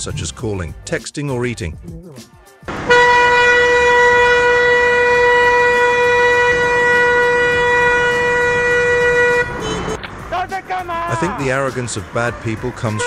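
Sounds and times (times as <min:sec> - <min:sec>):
vehicle horn long blast: 0:02.7 - 0:10.0, 0:12.8 - 0:13.0
traffic noise: 0:02.7 - 0:13.0.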